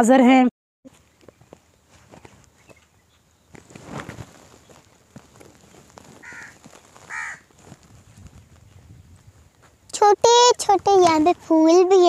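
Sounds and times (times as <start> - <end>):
crow cawing: 6.2 - 7.5.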